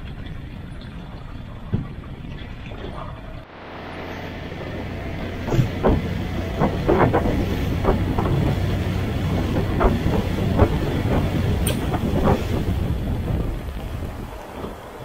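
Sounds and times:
outboard motor running: 0:03.7 - 0:14.9
hull slapping against waves: 0:04.4 - 0:15.0.

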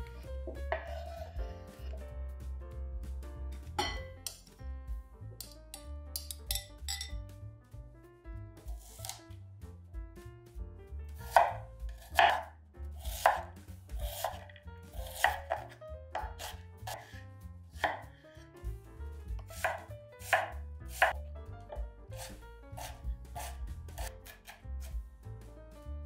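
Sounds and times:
knife chopping on cutting board: 0:00.4 - 0:02.0, 0:08.7 - 0:09.4, 0:11.2 - 0:18.2, 0:19.3 - 0:25.0.

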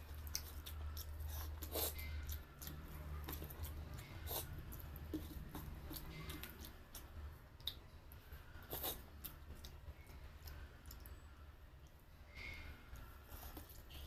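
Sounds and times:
soft wet clicks of eating by hand: 0:04.8 - 0:08.2, 0:09.2 - 0:11.2.

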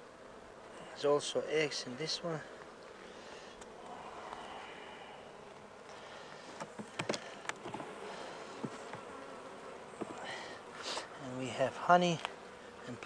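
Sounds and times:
bees buzzing: 0:00.0 - 0:13.0
hive frames clicking and knocking: 0:05.4 - 0:09.1, 0:09.9 - 0:11.1.

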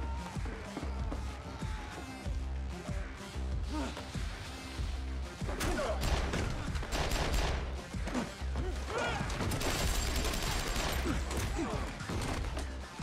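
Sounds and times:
rapid gunfire bursts: 0:06.0 - 0:07.8, 0:09.4 - 0:11.3.

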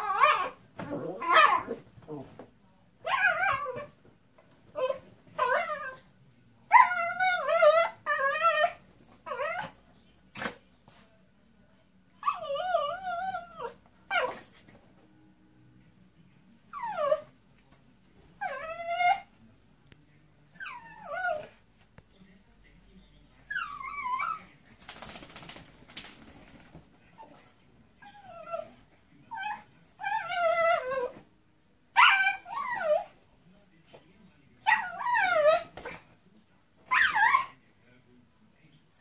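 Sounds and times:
dog whining: 0:00.0 - 0:01.8, 0:12.2 - 0:14.5, 0:16.4 - 0:17.3, 0:18.4 - 0:19.3, 0:20.5 - 0:21.6, 0:23.4 - 0:24.5, 0:28.0 - 0:28.7, 0:29.3 - 0:31.2, 0:32.0 - 0:33.1, 0:34.7 - 0:35.7, 0:36.9 - 0:37.5.

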